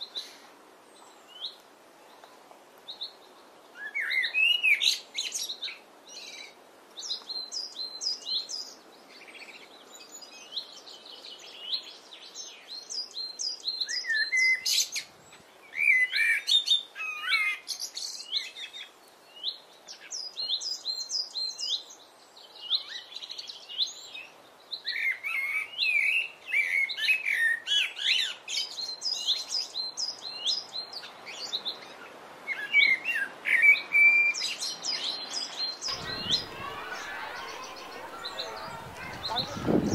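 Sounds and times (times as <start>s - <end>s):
blackbird singing: 7.0s - 15.0s, 32.5s - 39.9s.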